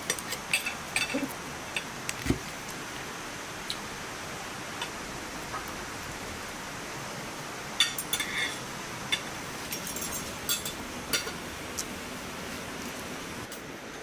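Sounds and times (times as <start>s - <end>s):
rain hiss: 0.0s - 14.0s
cutlery clinking on ceramic plate: 9.2s - 11.4s.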